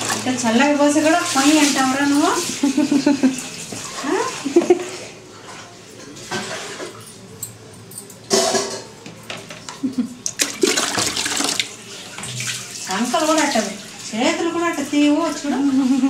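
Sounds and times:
water splashing: 0:00.0 - 0:05.1, 0:10.2 - 0:16.0.

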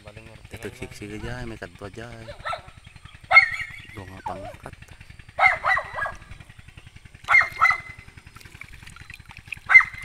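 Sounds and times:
dog barking: 0:02.2 - 0:02.7, 0:03.3 - 0:03.8, 0:05.4 - 0:06.3, 0:07.3 - 0:08.0, 0:09.7 - 0:10.0.

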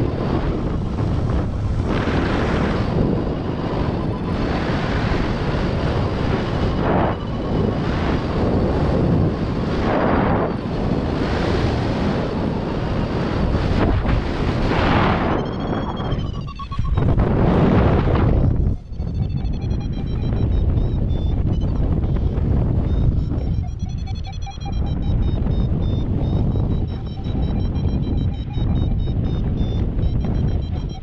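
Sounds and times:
wind rushing over microphone: 0:00.0 - 0:31.0.

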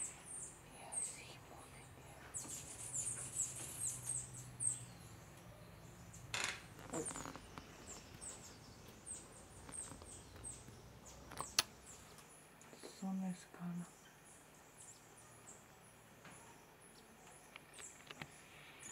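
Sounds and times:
small birds chirping: 0:00.0 - 0:18.9.

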